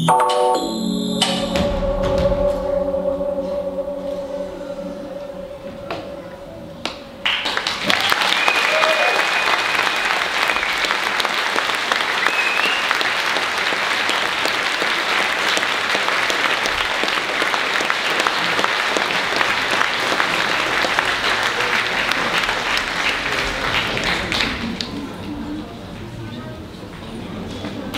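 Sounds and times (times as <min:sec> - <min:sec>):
audience applauding: 0:06.8 - 0:25.2.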